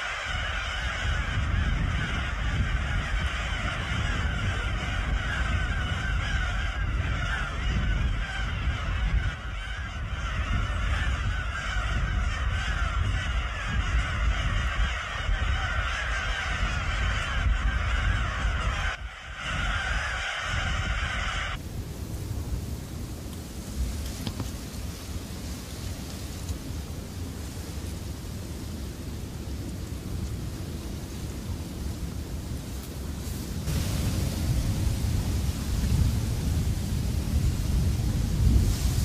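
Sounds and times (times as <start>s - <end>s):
gulls calling in chorus: 0.0s - 21.6s
even hiss: 33.1s - 39.0s.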